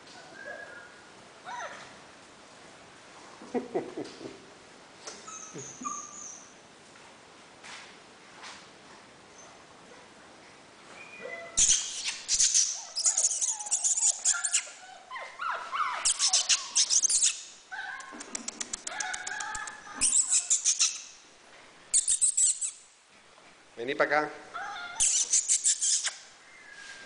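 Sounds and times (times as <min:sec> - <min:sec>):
puppies yipping and whining: 0:05.2 - 0:06.6, 0:10.9 - 0:21.1, 0:24.6 - 0:27.0
claw clicks on tiled floor: 0:18.0 - 0:19.8.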